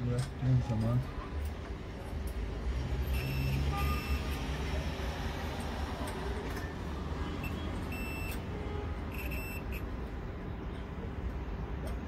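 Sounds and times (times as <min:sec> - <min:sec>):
multimeter beeps: 0:03.1 - 0:04.4, 0:07.4 - 0:08.4, 0:09.1 - 0:09.9.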